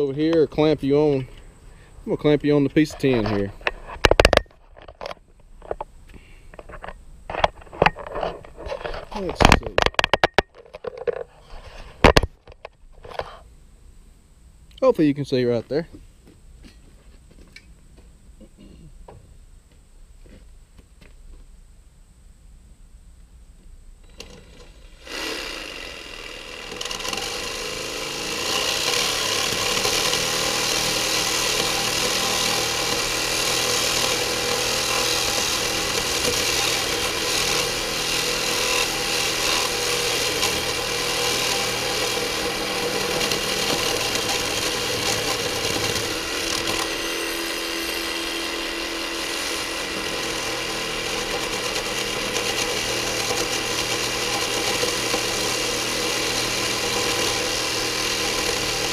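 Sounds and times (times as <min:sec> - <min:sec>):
reciprocating saw cutting wire mesh: 0:24.1 - 0:58.9.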